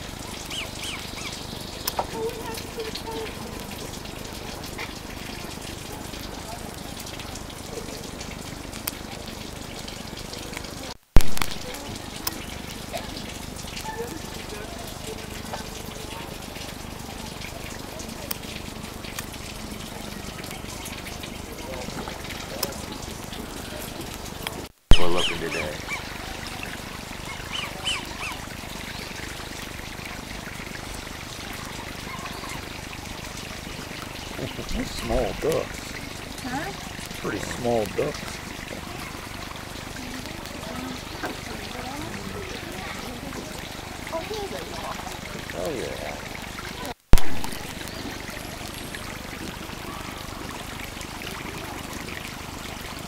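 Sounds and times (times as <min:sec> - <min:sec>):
stream water running: 0:00.0 - 0:53.0
bird chirping: 0:00.5 - 0:02.0, 0:24.9 - 0:26.1
sharp click: 0:47.2 - 0:47.6.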